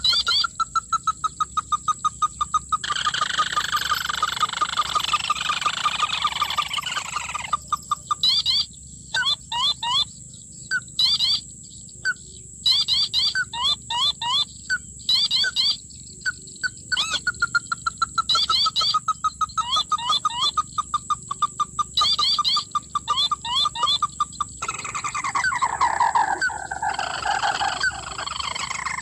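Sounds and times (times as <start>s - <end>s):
bird calls from phone speaker: 0.0s - 1.7s, 2.8s - 10.1s, 21.6s - 29.0s.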